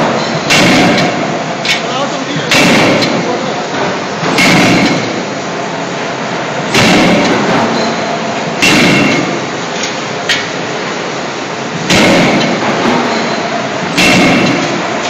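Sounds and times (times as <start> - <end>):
workshop machinery noise: 0.0 - 15.0
forging hammer striking hot steel: 0.5 - 1.8, 2.5 - 3.3, 4.3 - 5.2, 6.7 - 7.9, 8.6 - 9.4, 11.9 - 13.3, 13.9 - 14.9.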